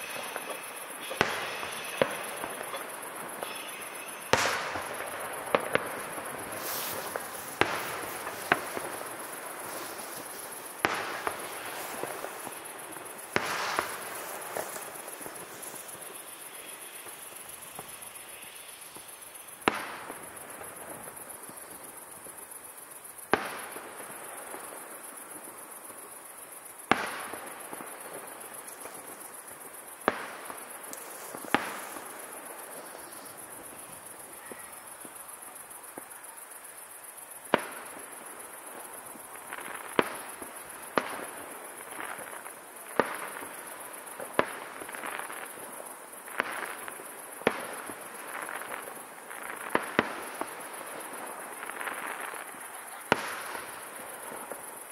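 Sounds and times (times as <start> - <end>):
firework shells bursting: 0.0 - 18.4.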